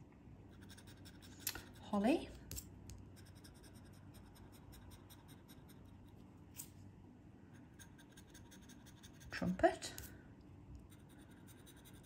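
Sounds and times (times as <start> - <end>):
metal tool scratching card: 7.7 - 9.4, 10.9 - 12.0.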